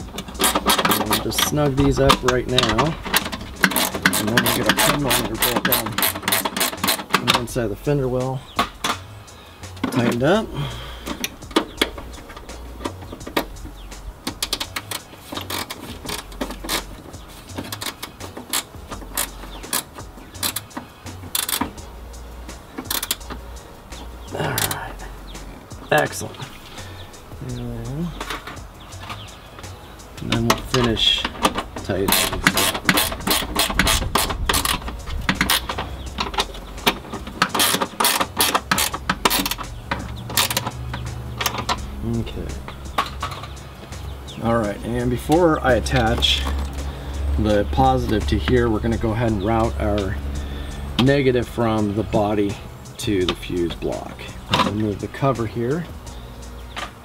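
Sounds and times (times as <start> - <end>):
socket ratchet clicking: 0.0 - 7.5, 11.0 - 25.8, 28.1 - 44.4.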